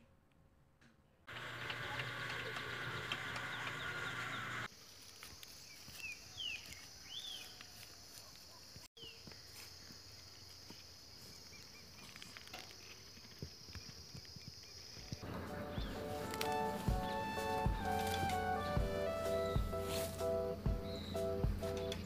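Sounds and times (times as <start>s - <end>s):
chorus of bird calls: 1.4s - 4.7s
bird chirps: 14.4s - 22.0s.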